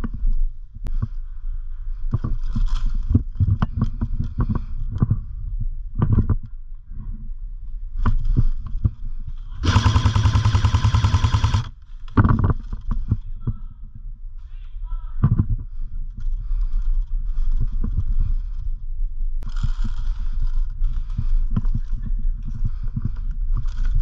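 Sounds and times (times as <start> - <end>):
airsoft rifle firing bursts: 9.6 - 11.8.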